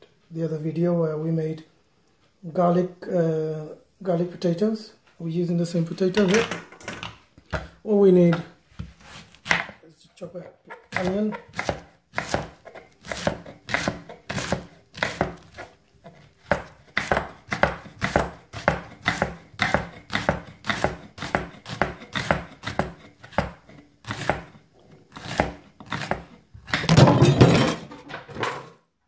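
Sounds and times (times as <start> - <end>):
knife chopping on wooden board: 8.3 - 9.8, 10.8 - 27.0.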